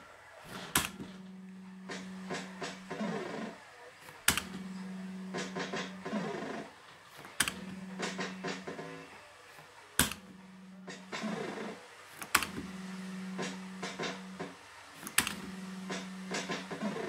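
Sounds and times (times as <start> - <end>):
fruit machine sharp clacks: 13.4 - 17.0.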